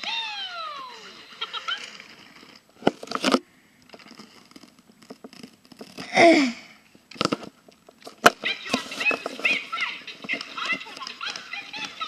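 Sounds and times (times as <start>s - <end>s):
toy handling taps and knocks: 7.1s - 12.0s.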